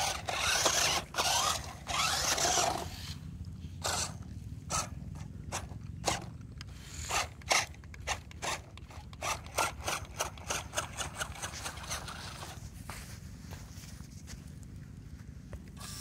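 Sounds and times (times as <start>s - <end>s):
toy truck motor drone: 0.0s - 3.2s, 3.8s - 12.6s, 15.8s - 16.0s.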